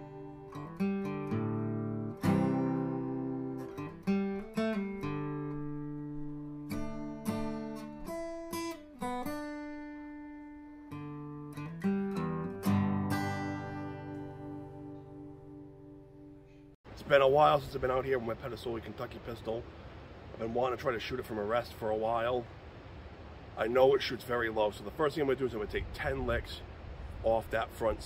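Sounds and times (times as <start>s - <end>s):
acoustic guitar: 0.0s - 16.8s.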